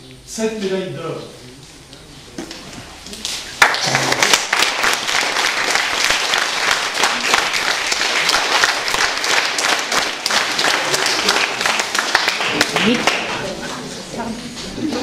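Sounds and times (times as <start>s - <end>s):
people applauding: 3.6s - 13.6s.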